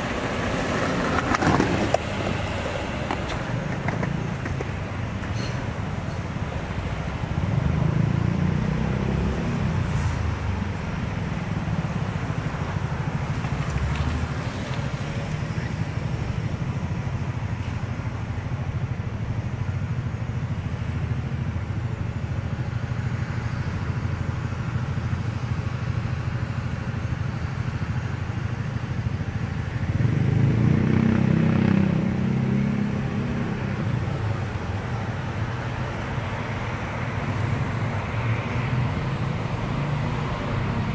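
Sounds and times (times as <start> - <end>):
road traffic rumble: 0.0 - 40.9
vehicle passing loudly: 6.7 - 10.7, 29.8 - 40.9.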